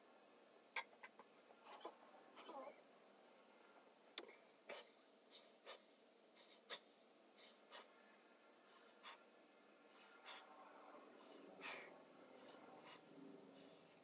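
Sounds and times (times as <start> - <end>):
quick breaths: 4.7 - 14.0.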